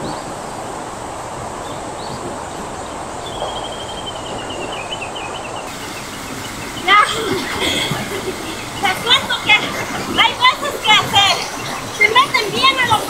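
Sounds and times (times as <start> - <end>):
bird chirping: 1.6 - 13.0
bird pulsed falling call: 3.2 - 13.0
mountain stream over rocks: 5.6 - 13.0.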